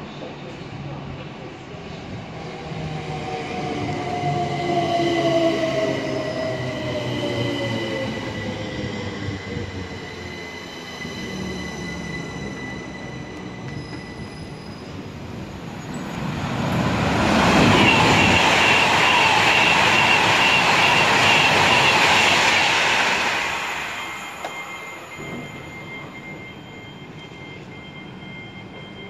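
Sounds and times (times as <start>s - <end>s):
approaching train rushing: 0.9s - 28.3s
high brake squeal: 7.8s - 16.1s, 17.4s - 29.0s.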